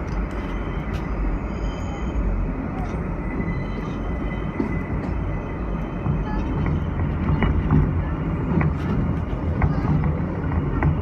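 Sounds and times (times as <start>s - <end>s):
muffled rumble of train wheels: 0.0s - 11.0s.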